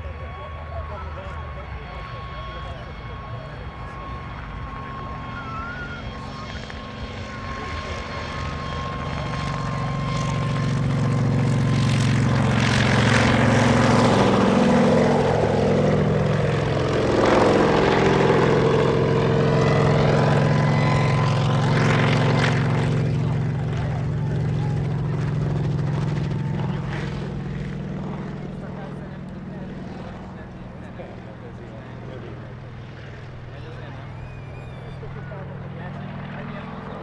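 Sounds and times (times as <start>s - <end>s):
helicopter engines and rotors: 0.0s - 37.0s.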